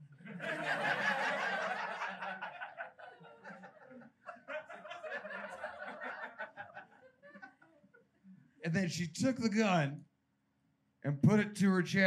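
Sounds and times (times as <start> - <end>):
audience laughing: 0.2 - 8.0.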